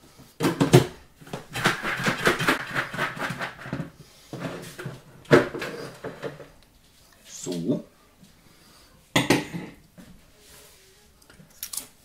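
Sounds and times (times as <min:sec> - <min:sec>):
popcorn rattling in a covered bowl: 0:01.5 - 0:03.9.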